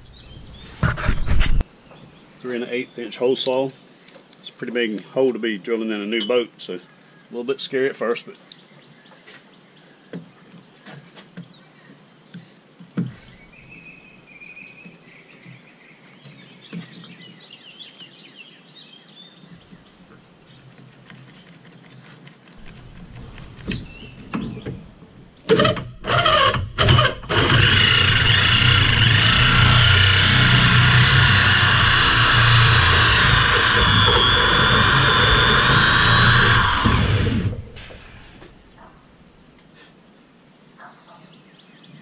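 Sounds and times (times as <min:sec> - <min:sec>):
birds chirping: 0:00.0 - 0:22.0, 0:22.6 - 0:25.5, 0:27.6 - 0:39.6
drill with hole saw cutting metal: 0:25.5 - 0:38.5.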